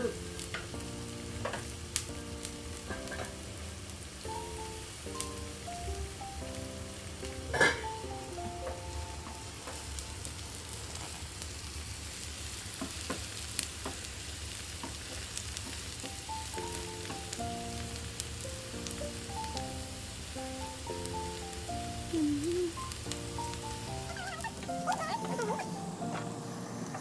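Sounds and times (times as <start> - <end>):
soft background music: 0.0 - 11.0, 16.0 - 27.0
onion and garlic sizzling in oil: 0.0 - 27.0.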